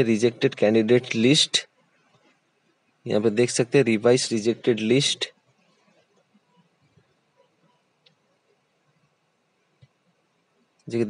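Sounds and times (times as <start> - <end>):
faint clicks: 5.4 - 8.3, 9.7 - 10.9.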